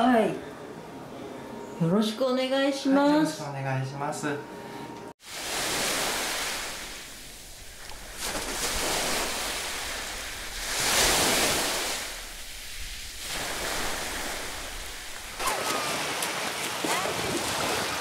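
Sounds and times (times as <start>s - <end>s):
sea waves washing onto beach: 5.2s - 18.0s.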